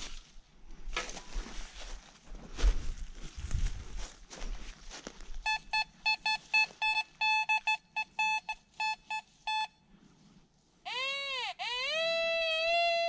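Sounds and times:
rustling and scuffing: 0.0 - 5.4
metal detector short beeps: 5.4 - 9.8.

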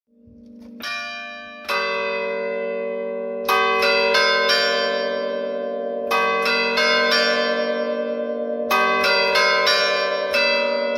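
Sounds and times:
church bells playing tune: 0.2 - 10.9.

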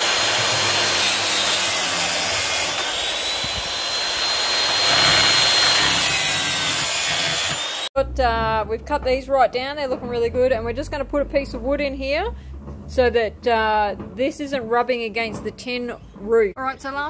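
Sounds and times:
angle grinder cutting steel: 0.0 - 7.9.

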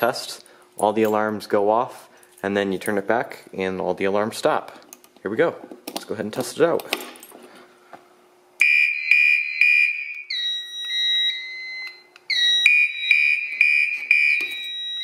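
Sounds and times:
pulsing high alarm horn: 8.6 - 15.0
steady low alarm tone: 8.6 - 15.0.

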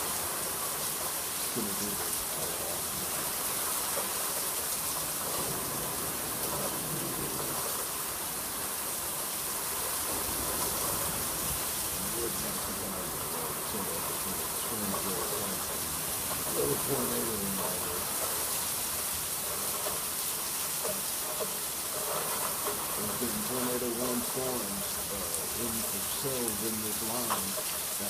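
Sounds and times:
steady rain hissing: 0.0 - 28.0.

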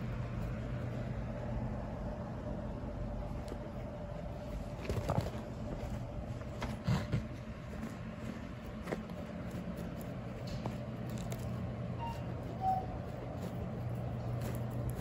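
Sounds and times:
steady low hum: 0.0 - 15.0
guinea pig crunching hay: 4.3 - 15.0.

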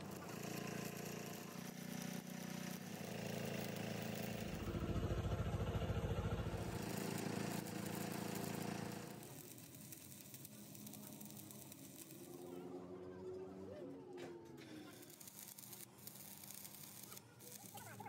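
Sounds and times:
welding arc crackling: 0.0 - 4.8, 6.3 - 12.5, 14.8 - 18.0
welding machine hum: 0.0 - 12.8, 14.6 - 18.0.

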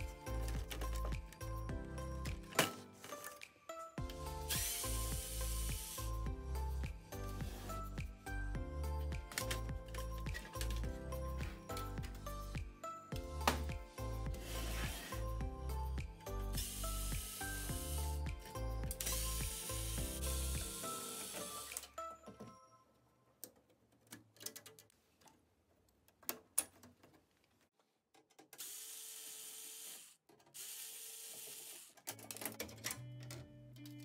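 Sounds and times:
background music with bass: 0.0 - 2.6, 4.0 - 21.1
electric screwdriver running: 4.5 - 6.1, 16.6 - 18.1, 19.0 - 21.8, 28.6 - 31.9
clicks and rattles of parts: 9.3 - 10.9, 23.4 - 28.6, 31.9 - 34.0.

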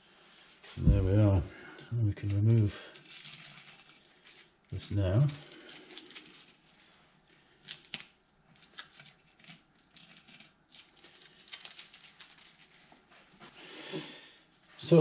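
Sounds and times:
masking tape crinkling: 2.2 - 13.4.

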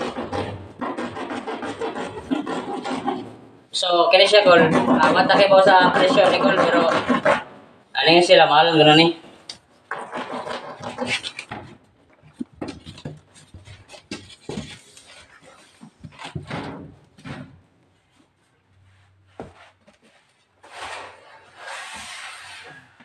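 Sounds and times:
cardboard rustling and scraping: 10.0 - 23.0.

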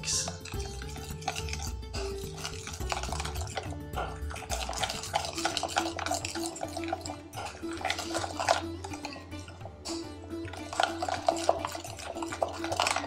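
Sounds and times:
background music: 0.0 - 13.0
spoon scraping glass bowl: 0.0 - 13.0.

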